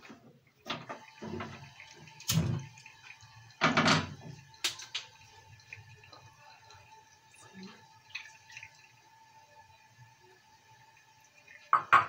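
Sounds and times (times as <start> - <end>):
frying pan clattering on stove: 3.6 - 4.2, 11.7 - 12.0.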